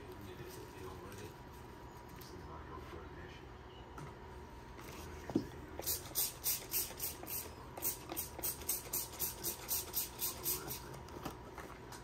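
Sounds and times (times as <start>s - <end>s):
spray bottle squirting: 5.8s - 10.8s.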